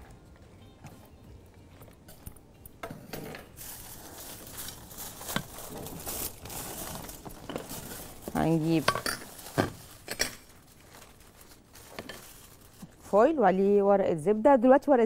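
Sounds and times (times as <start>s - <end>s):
foil and baking paper crinkling: 3.5s - 13.4s.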